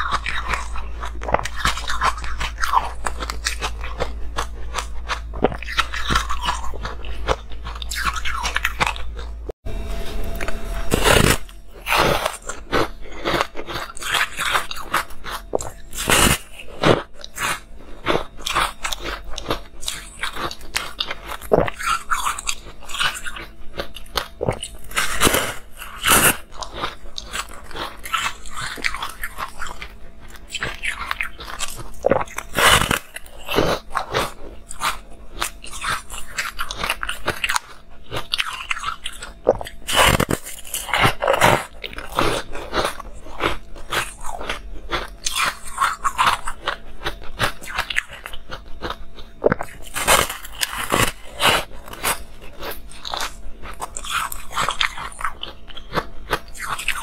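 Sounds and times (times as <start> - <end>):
crunching bites of ice: 39.9 - 46.4.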